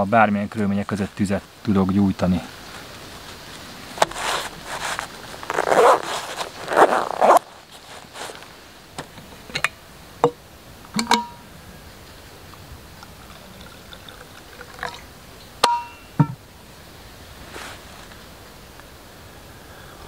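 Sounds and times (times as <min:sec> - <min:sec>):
metal flask clicks and clinks: 0:11.0 - 0:11.4, 0:15.6 - 0:16.4
sharp ringing clink: 0:11.0 - 0:11.5, 0:15.6 - 0:16.2
drink trickling into cup: 0:13.0 - 0:15.1.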